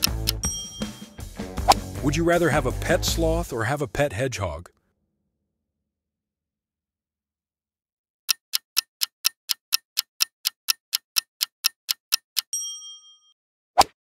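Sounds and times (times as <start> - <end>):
clock ticking: 0.0 - 1.0, 8.3 - 12.5
ringing chime: 0.4 - 1.2, 12.5 - 13.4.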